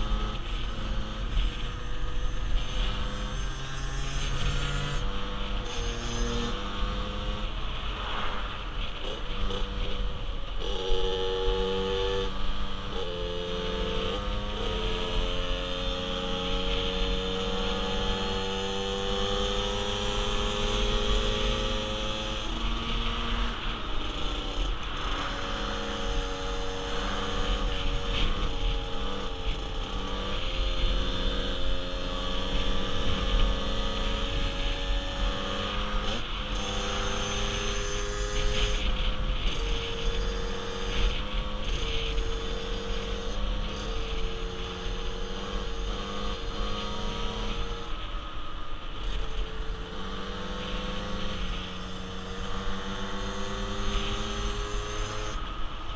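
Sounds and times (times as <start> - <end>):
small motorcycle engines: 0.0 - 55.9.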